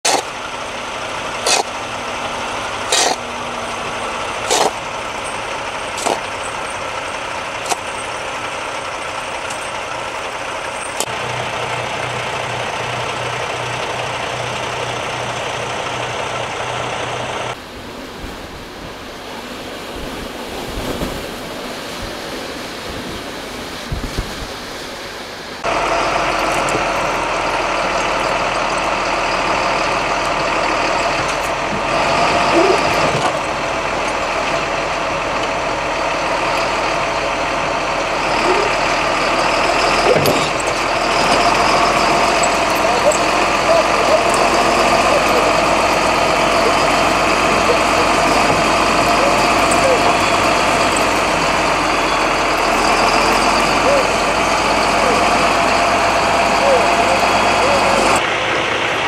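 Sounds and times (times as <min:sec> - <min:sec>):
diesel truck engines idling: 0:00.0 - 0:20.6, 0:24.6 - 0:59.0
heavy engine running: 0:00.0 - 0:59.0
low steady engine hum: 0:00.0 - 0:59.0.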